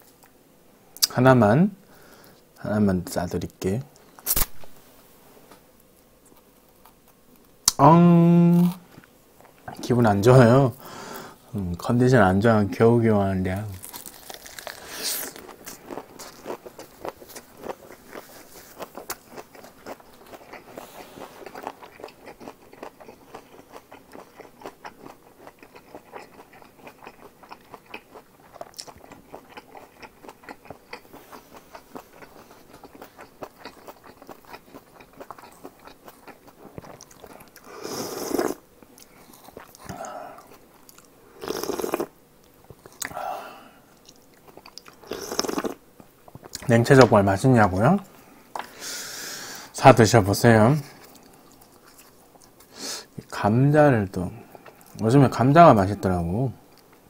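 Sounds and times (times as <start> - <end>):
wet chewing mouth clicks: 14.4 - 42.1, 44.0 - 46.7.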